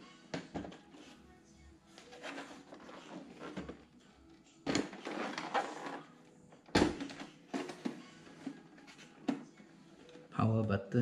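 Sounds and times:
plastic rubbing and scraping: 1.9 - 3.9, 4.7 - 6.2, 6.9 - 10.2.

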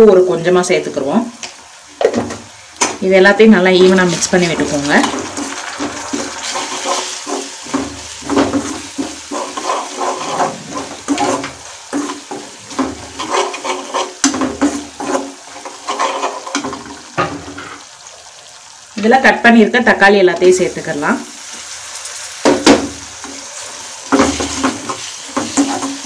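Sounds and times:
spices sizzling in hot oil: 0.0 - 26.0
metal spatula scraping a pan: 3.8 - 17.9, 22.4 - 26.0.

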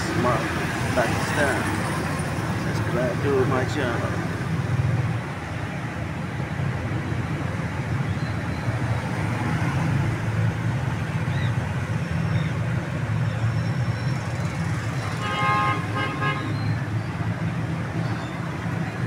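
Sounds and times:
road traffic rumble: 0.0 - 19.0
vehicle horn honks: 15.2 - 16.6.

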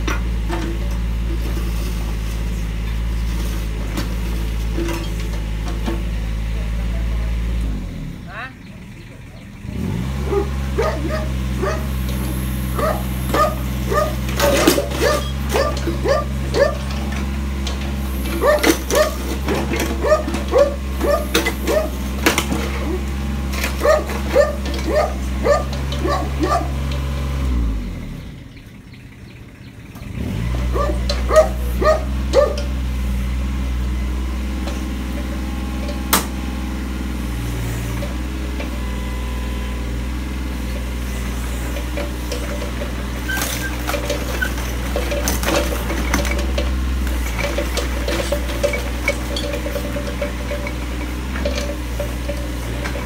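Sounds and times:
diesel engine running: 0.0 - 53.0
dog yipping: 10.3 - 11.9, 12.8 - 14.2, 15.0 - 16.9, 18.4 - 19.2, 20.0 - 22.0, 23.8 - 26.8, 30.7 - 32.6.

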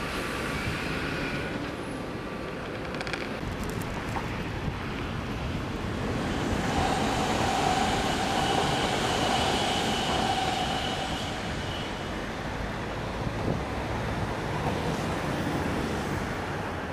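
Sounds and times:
train wheels rumbling on rail: 0.0 - 16.9
train high whine: 5.0 - 13.2.

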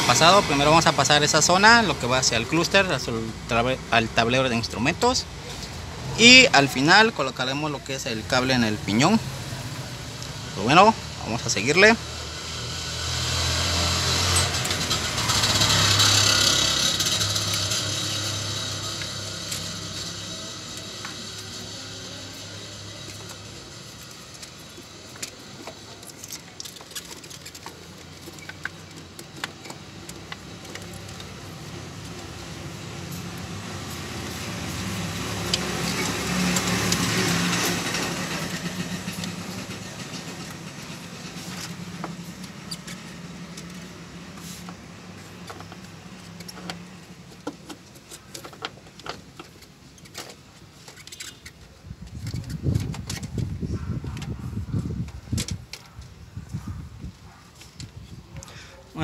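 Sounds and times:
vehicle passing by: 0.0 - 26.0, 30.5 - 47.1
small clicks and knocks: 24.0 - 32.3.

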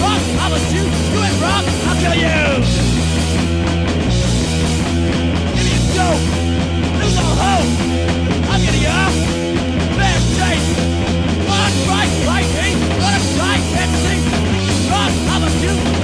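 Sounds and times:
loud punk song: 0.0 - 16.0.

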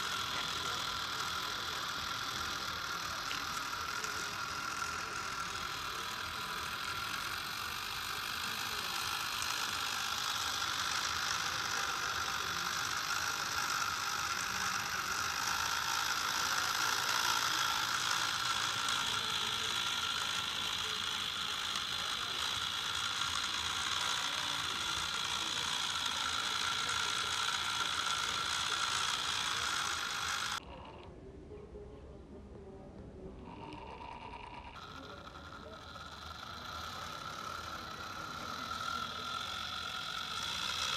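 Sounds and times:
toy electric motor whirring: 0.0 - 31.1, 33.3 - 40.9.

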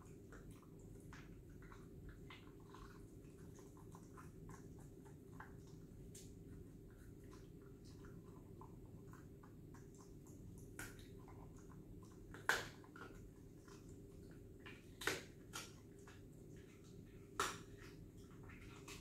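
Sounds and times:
dog chewing bone: 0.0 - 19.0
faint room noise: 0.0 - 19.0.

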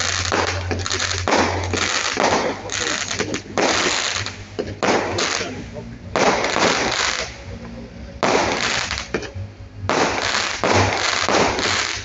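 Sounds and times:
fireworks bangs: 0.0 - 7.4, 8.2 - 9.3, 9.9 - 12.0.

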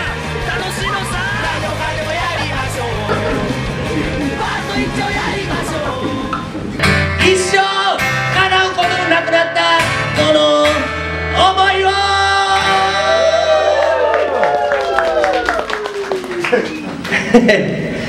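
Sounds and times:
dense music mix: 0.0 - 9.2
man singing: 0.0 - 13.5
strummed acoustic guitar: 1.6 - 11.6.

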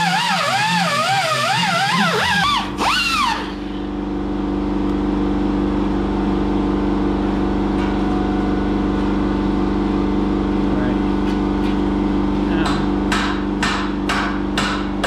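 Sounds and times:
pneumatic grinder whining on metal: 0.0 - 3.8
machine hum with held tones: 0.0 - 14.6.

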